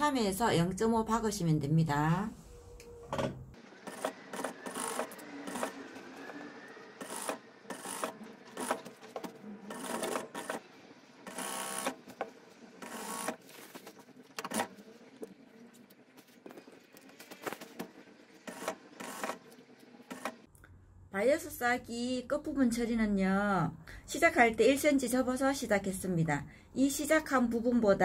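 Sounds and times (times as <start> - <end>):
sewing machine stitching: 3.6 - 5.9, 7.0 - 12.1, 12.8 - 13.4, 18.4 - 20.4.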